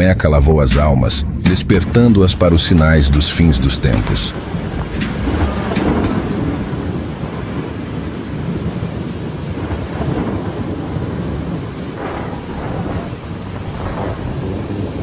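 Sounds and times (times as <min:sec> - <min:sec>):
low rumble: 0:00.0 - 0:15.0
rushing floodwater: 0:00.0 - 0:15.0
steady rain: 0:00.0 - 0:15.0.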